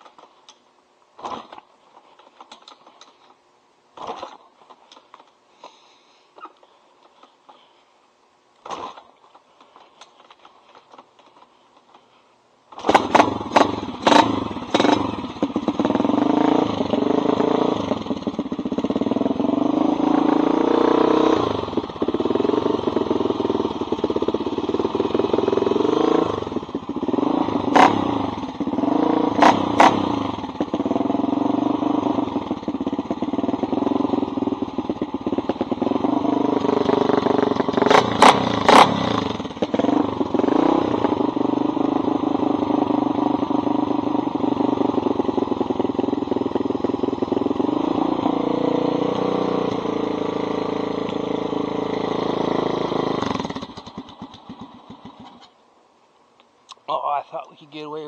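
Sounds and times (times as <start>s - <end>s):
motorcycle engine revving: 1.2s - 3.1s, 4.0s - 4.8s, 8.6s - 9.2s, 12.7s - 55.6s.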